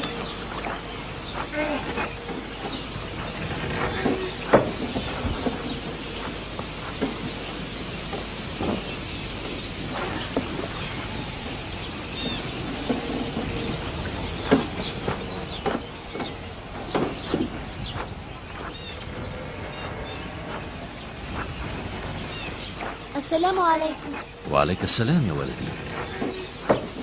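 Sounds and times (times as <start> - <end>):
even hiss: 0.0 - 27.0.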